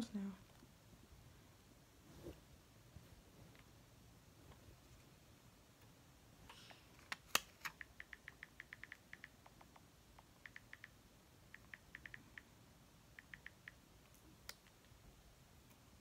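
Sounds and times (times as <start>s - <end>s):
phone keyboard ticks: 7.7s - 13.8s.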